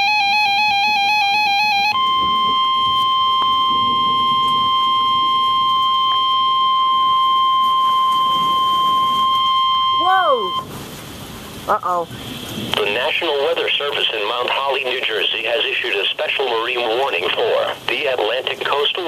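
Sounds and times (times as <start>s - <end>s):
steady loud warning alarm tone: 0.0s - 10.7s
warbling electronic tone: 0.0s - 10.7s.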